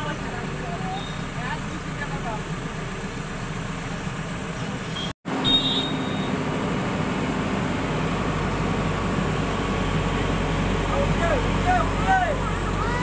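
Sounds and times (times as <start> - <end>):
diesel engine running: 0.0 - 13.0
brief high squeal: 4.9 - 6.4.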